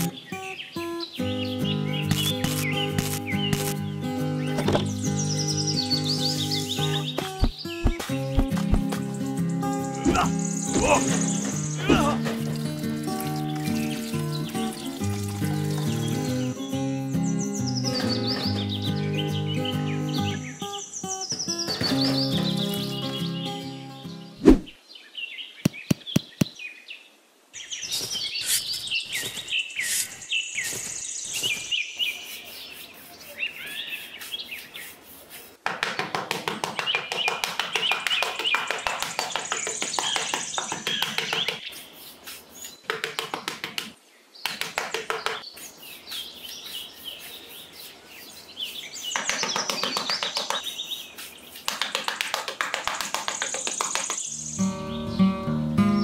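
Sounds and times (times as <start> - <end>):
birds chirping: 0.0 - 35.6, 36.7 - 56.0
hand trowel scraping sand: 27.9 - 35.6, 41.4 - 42.8, 49.9 - 53.6.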